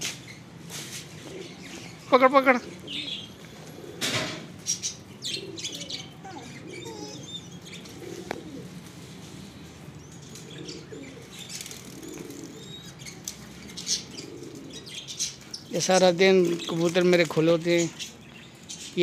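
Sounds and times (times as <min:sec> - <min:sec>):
pigeons cooing: 0:00.0 - 0:19.0
bird chirping: 0:01.3 - 0:03.4, 0:04.6 - 0:08.6, 0:09.4 - 0:19.0.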